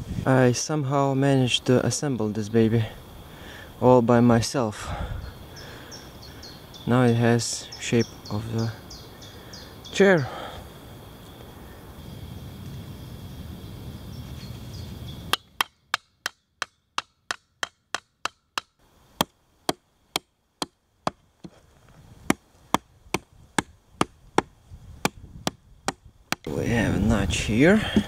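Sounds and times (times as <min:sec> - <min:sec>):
hatchet chopping log: 0:15.3 - 0:21.6, 0:22.3 - 0:26.5.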